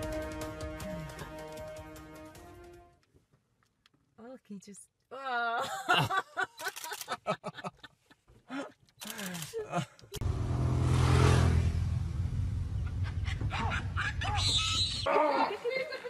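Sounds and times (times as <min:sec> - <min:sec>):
vehicle engine running: 0:10.2 - 0:14.5.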